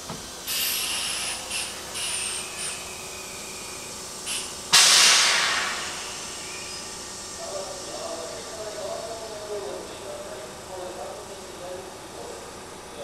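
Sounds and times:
train air brakes hissing: 0.4s - 9.6s.

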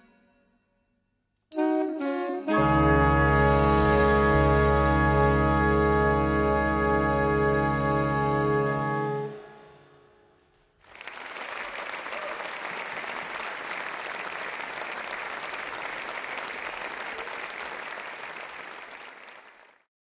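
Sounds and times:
orchestra final chord: 1.6s - 10.0s
audience applauding: 2.7s - 9.2s, 10.8s - 19.9s.

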